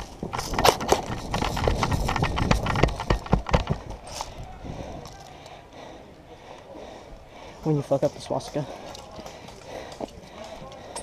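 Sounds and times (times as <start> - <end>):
gear jostling: 0.0 - 5.6
running footsteps on dirt: 0.0 - 11.0.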